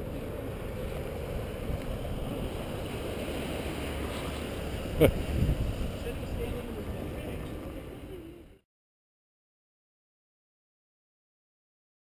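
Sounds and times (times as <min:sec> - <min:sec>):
waves breaking on rocky beach: 0:00.0 - 0:08.0
wind buffeting microphone: 0:00.0 - 0:08.1.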